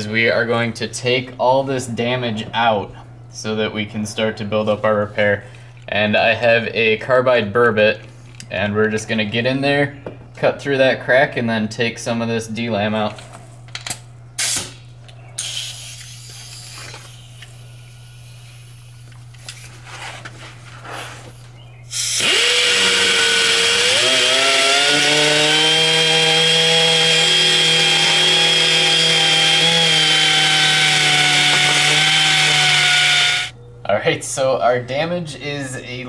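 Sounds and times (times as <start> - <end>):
rotary tool grinding fiberglass: 21.9 - 33.5.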